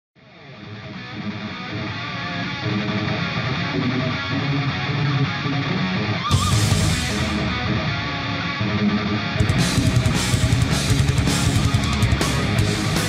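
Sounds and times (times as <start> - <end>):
background music: 6.3 - 13.0.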